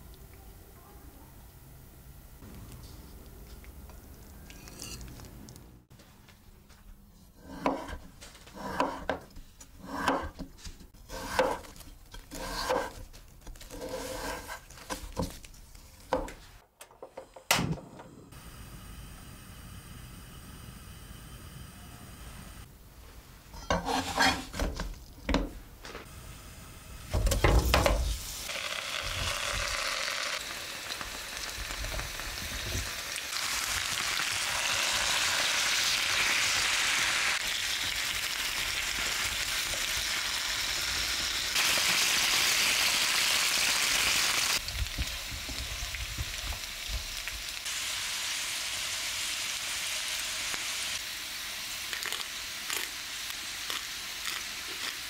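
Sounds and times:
spatula turning food: 7.2s - 16.6s, 23.6s - 25.4s
potatoes sizzling in oil: 26.1s - 55.0s.

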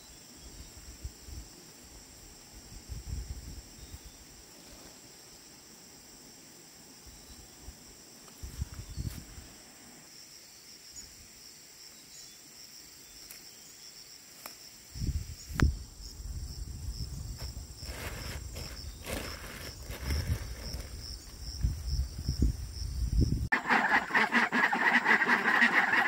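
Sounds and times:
insects chirping: 0.0s - 26.0s.

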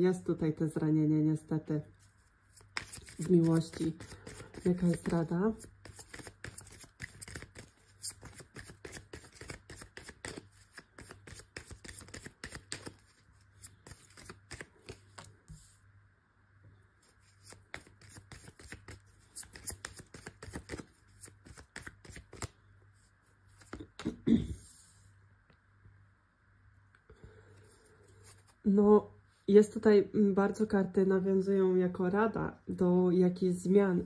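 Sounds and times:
cards being shuffled: 2.0s - 15.6s, 17.0s - 22.6s, 23.4s - 24.2s.

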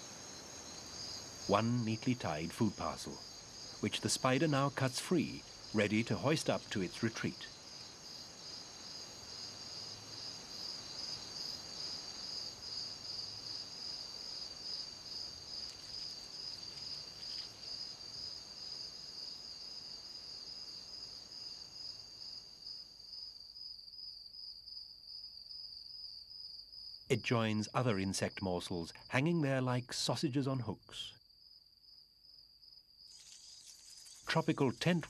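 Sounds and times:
high-pitched pulsing insect trill: 0.0s - 24.1s, 32.7s - 35.0s
fainter higher insect trill: 0.0s - 30.7s, 31.4s - 35.0s.

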